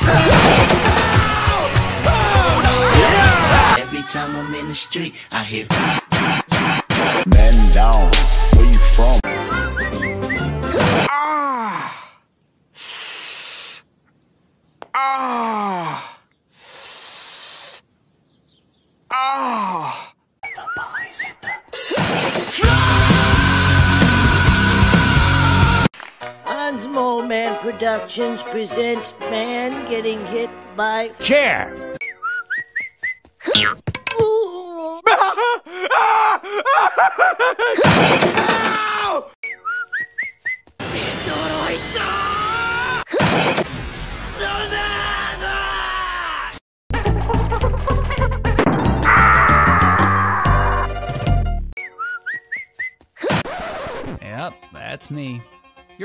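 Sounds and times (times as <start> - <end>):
cartoon man yelling: 1.0 - 3.9
whistled notes: 9.2 - 10.6, 20.4 - 21.7, 32.0 - 33.4, 39.4 - 40.7, 51.8 - 53.0.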